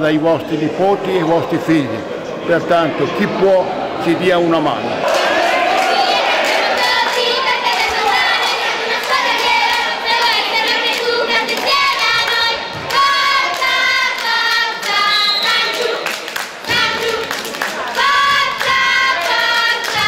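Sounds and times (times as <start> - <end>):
girls singing a chant: 5.2 - 20.0
clapping along: 9.0 - 20.0.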